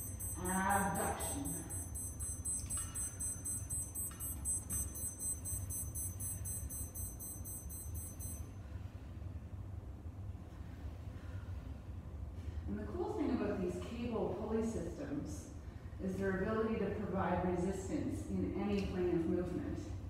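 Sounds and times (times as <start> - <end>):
high-pitched pulsing electronic buzz: 0.0 - 8.4
low room hum: 0.0 - 20.0.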